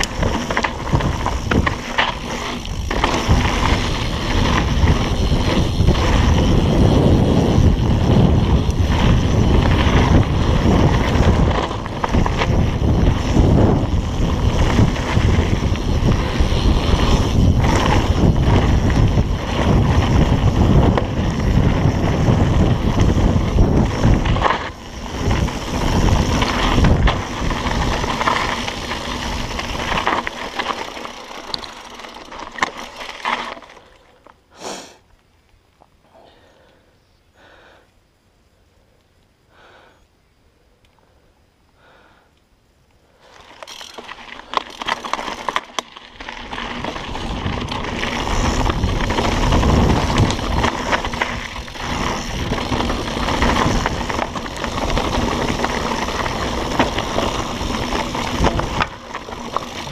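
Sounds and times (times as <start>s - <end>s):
wind rushing over microphone: 0.0s - 30.4s, 46.2s - 59.9s
tyres on dirt: 0.0s - 35.1s, 43.2s - 59.9s.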